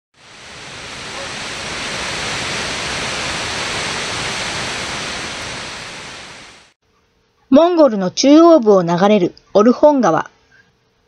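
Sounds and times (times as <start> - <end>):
waterfall rushing into pool: 0.2 - 6.8.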